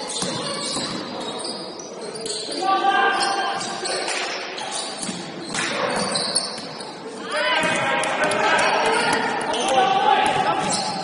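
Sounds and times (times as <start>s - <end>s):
basketball bouncing on court: 10.2s - 11.0s.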